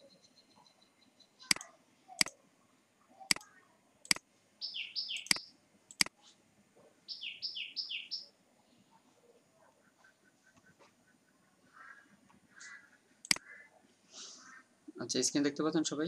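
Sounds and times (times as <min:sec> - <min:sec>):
small bird chirping: 0:00.0 - 0:02.4, 0:03.1 - 0:06.4, 0:07.0 - 0:13.8
computer mouse clicks: 0:01.5 - 0:02.4, 0:03.3 - 0:04.2, 0:05.2 - 0:06.2, 0:13.2 - 0:13.5.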